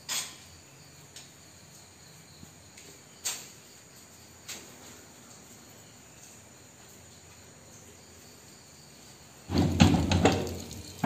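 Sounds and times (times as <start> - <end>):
steel door clattering: 9.5 - 11.0.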